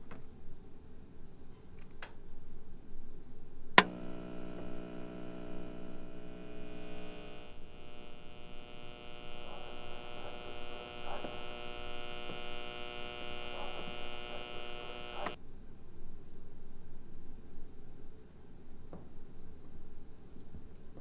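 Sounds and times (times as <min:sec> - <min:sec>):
sharp click: 0:03.8 - 0:04.7
faint ticks: 0:03.8 - 0:15.4
steady electrical hum: 0:03.8 - 0:15.4.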